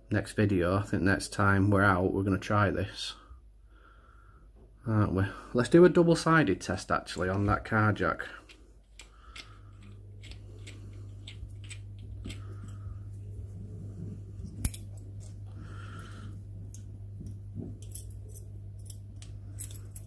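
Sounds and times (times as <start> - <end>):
steady low hum: 0.0 - 20.0
metal threads clicking and scraping: 8.5 - 13.2, 17.8 - 20.0.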